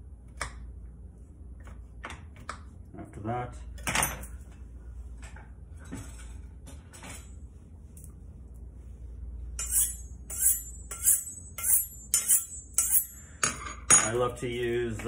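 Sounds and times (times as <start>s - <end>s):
knife scraping on honing steel: 9.6s - 13.3s.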